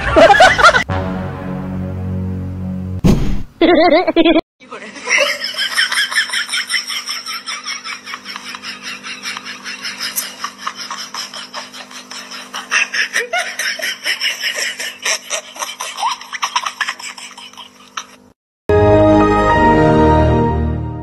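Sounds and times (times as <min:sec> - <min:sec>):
person laughing breathily: 0:09.9 - 0:18.2.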